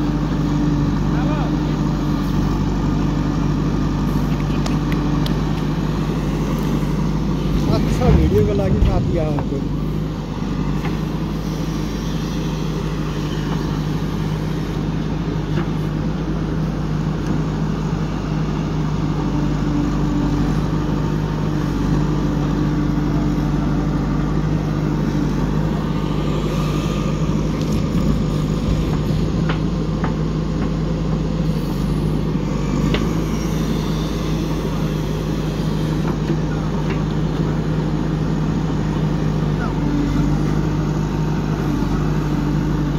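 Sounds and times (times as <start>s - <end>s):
diesel engine under hydraulic load: 0.0s - 42.9s
sharp knocks: 7.5s - 10.0s.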